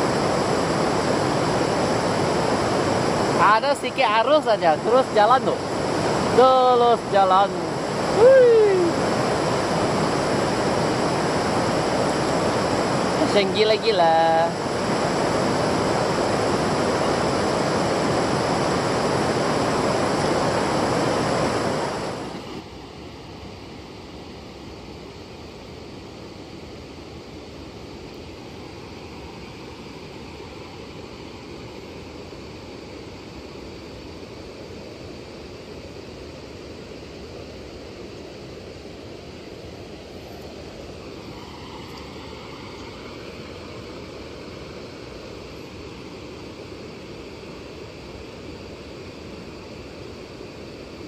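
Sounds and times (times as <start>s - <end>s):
river water rushing: 0.0s - 24.9s, 38.1s - 51.0s.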